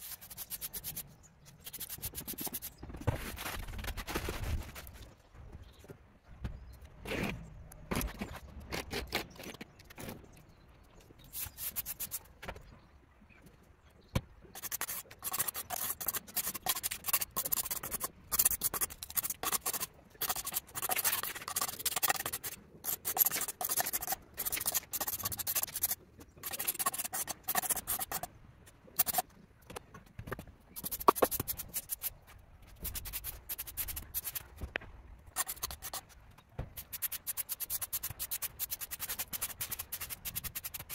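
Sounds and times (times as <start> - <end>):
hand tool scraping ground: 14.6 - 28.3.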